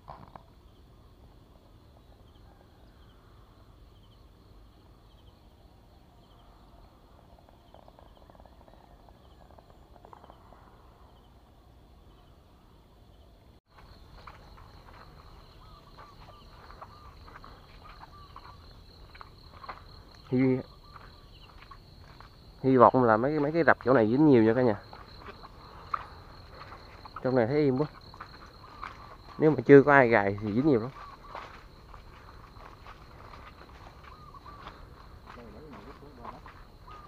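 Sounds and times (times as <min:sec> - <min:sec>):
insects chirring: 0:00.0 - 0:37.0
footsteps on dirt path: 0:13.7 - 0:37.0
bird chirps: 0:15.2 - 0:19.2, 0:20.2 - 0:21.8, 0:30.2 - 0:31.6, 0:34.0 - 0:37.0.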